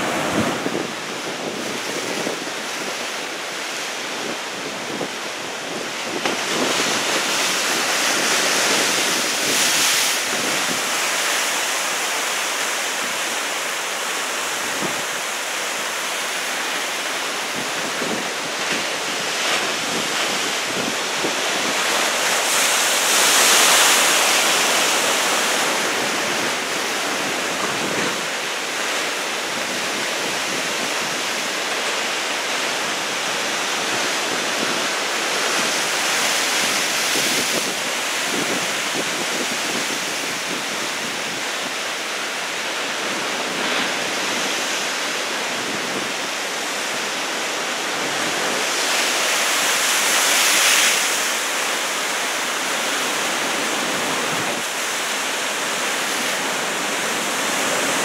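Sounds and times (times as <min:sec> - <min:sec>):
wind buffeting microphone: 0:00.0 - 0:03.2
heavy ocean surf breaking: 0:00.0 - 0:58.0.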